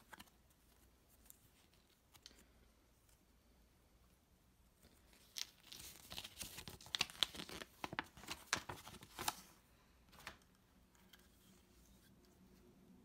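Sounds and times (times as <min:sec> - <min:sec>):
packaging rustling and crinkling: 0:04.9 - 0:09.6.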